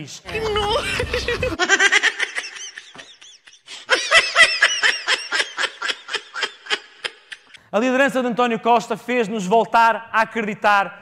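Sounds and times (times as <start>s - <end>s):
person laughing hard: 0.3s - 7.6s.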